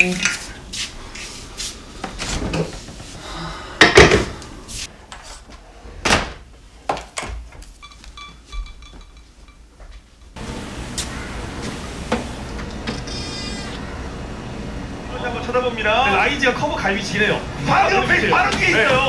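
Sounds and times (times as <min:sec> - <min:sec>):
faint broken high tones: 0:07.8 - 0:09.6, 0:13.0 - 0:13.8.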